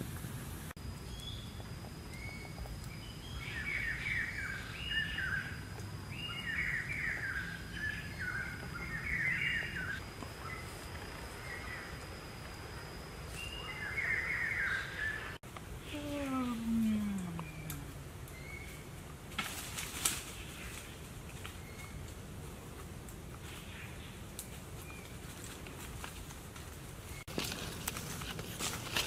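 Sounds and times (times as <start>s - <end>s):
birds chirping: 1.0s - 12.2s, 13.2s - 18.8s
thin high-pitched whine: 9.6s - 18.0s.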